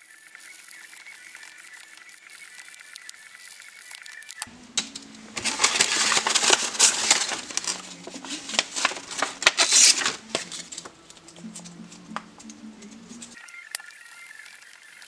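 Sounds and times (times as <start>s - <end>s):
sandpaper crinkling and scraping: 5.3s - 11.0s.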